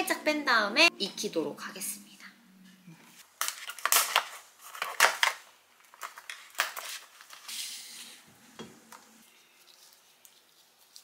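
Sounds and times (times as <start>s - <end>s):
plastic tray and wrap crinkling: 3.4s - 7.5s.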